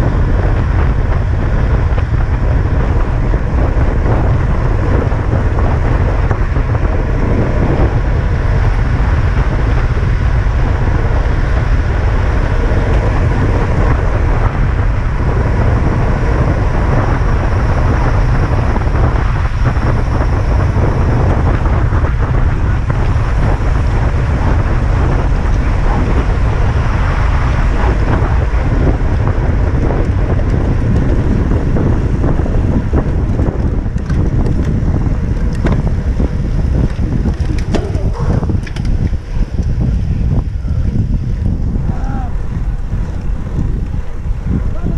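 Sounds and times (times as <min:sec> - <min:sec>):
loud wind rumble on microphone: 0:00.0 - 0:44.9
rushing air and road noise: 0:00.0 - 0:44.9.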